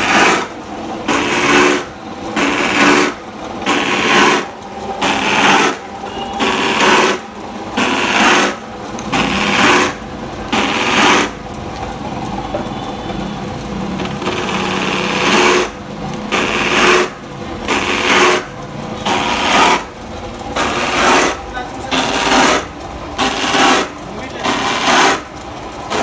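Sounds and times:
cutter disc rasping through pipe: 22.0s - 25.3s.

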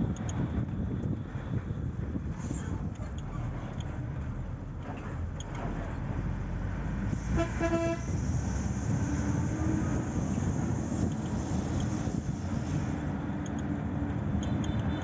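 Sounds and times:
vehicle road rumble: 0.0s - 15.0s
vehicle horn toot: 7.2s - 8.2s, 14.4s - 15.0s.

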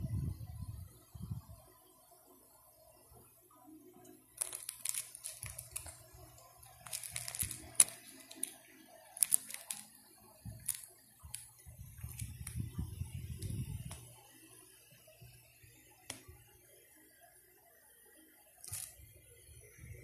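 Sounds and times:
plastic pages crinkling: 4.4s - 12.8s, 18.6s - 19.0s.

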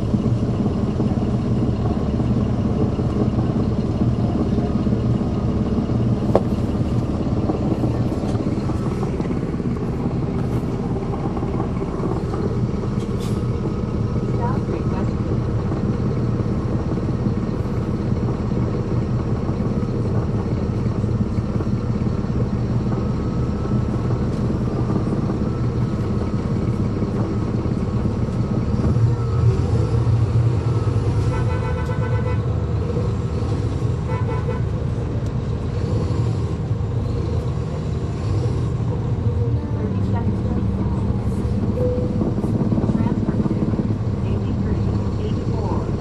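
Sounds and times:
bus diesel engine running: 0.0s - 46.0s
vehicle horn honking: 31.3s - 32.4s.

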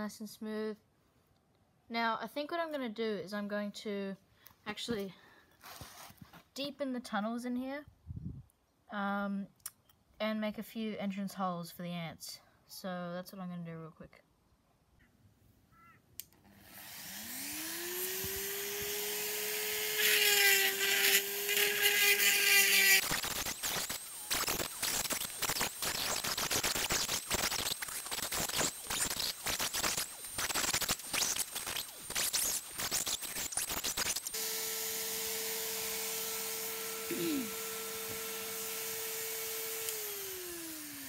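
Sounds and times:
power tool whine: 16.5s - 41.0s.

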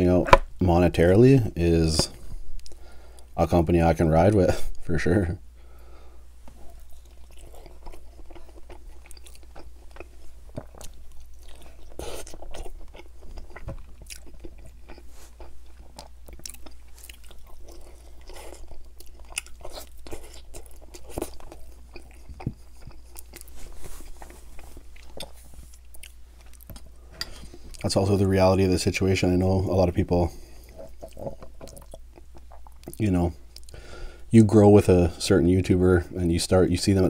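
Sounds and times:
person chewing: 6.5s - 27.9s, 30.4s - 33.8s.

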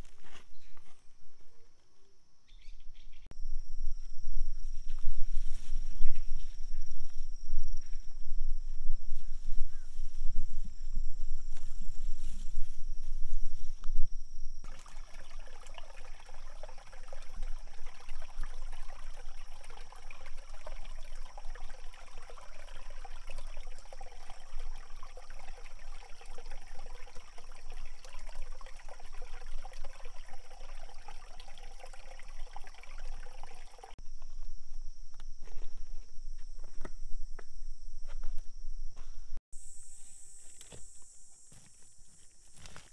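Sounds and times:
mountain stream babbling over rocks: 14.7s - 34.0s.

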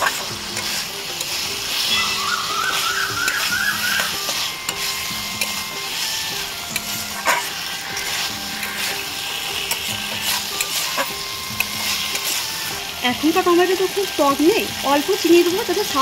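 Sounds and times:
spatula clicking on pan: 0.0s - 1.8s, 3.2s - 5.6s, 6.7s - 12.4s
spatula stirring and scraping: 0.0s - 13.4s
food sizzling in a metal pan: 0.0s - 16.0s.

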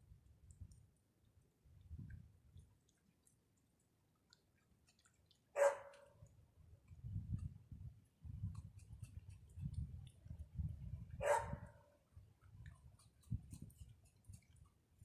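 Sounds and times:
animal chewing popcorn: 2.6s - 6.1s, 12.0s - 15.0s.

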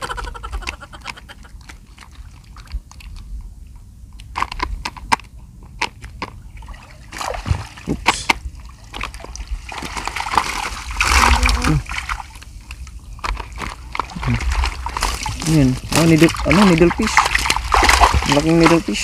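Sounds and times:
low steady rumble: 0.0s - 19.0s
seawater sloshing and splashing: 6.5s - 19.0s.

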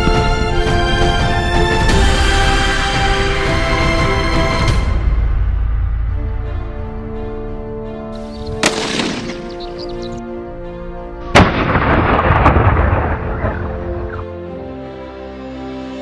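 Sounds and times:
background music: 0.0s - 16.0s
rolling echo: 8.4s - 10.2s
rifle shots: 8.6s - 9.8s.

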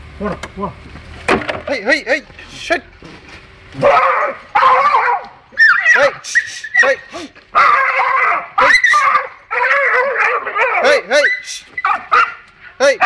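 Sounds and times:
dog barking and whining: 3.8s - 13.0s.

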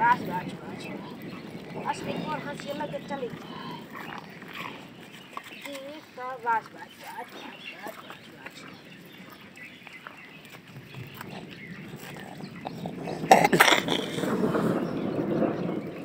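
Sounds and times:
cow breathing out noisily: 3.3s - 5.3s, 10.9s - 15.2s.

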